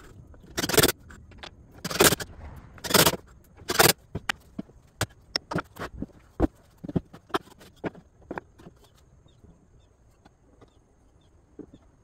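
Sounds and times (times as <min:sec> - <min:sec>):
wooden pieces knocking and clacking: 0:00.0 - 0:09.1.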